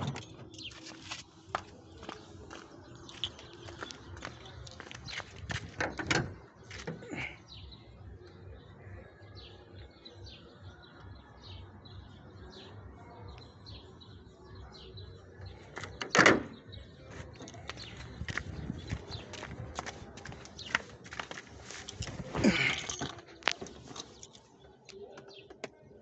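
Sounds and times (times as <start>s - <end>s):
car bonnet slammed shut: 16.0s - 16.6s.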